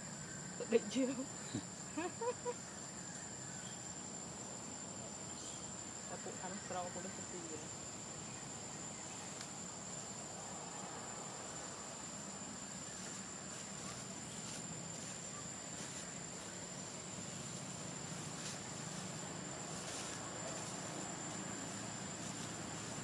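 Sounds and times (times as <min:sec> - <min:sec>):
insects droning: 0:00.0 - 0:23.0
low background hiss: 0:00.0 - 0:23.0.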